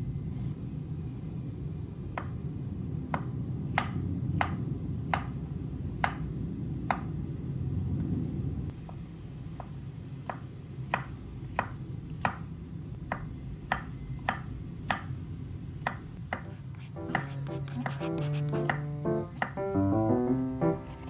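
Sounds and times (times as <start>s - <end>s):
low steady rumble: 0.0s - 9.6s
knife tapping on cutting board: 15.8s - 19.6s.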